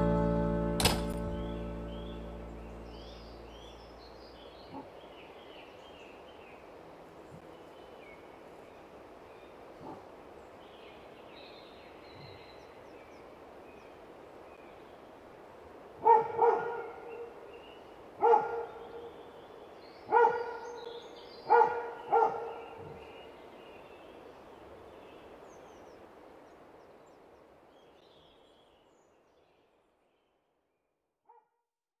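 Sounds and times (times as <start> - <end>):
steady background hiss: 0.0 - 30.1
dog barking: 4.7 - 5.0, 9.8 - 10.1, 16.0 - 17.3, 18.2 - 19.1, 20.1 - 20.9, 21.5 - 23.1, 31.3 - 31.5.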